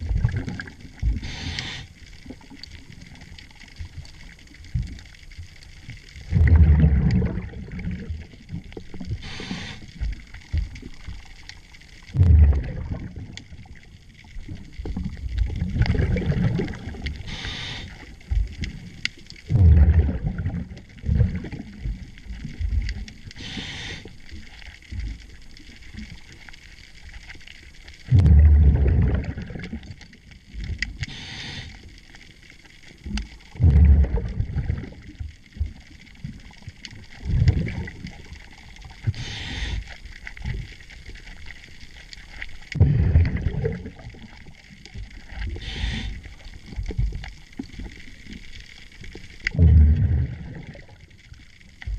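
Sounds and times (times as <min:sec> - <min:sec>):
exhaled air bubbling: 0:00.0 - 0:51.9
regulator hiss on inhale: 0:01.1 - 0:02.2, 0:09.1 - 0:10.2, 0:17.2 - 0:18.2, 0:23.3 - 0:24.6, 0:30.9 - 0:32.2, 0:39.0 - 0:40.2, 0:45.5 - 0:46.7.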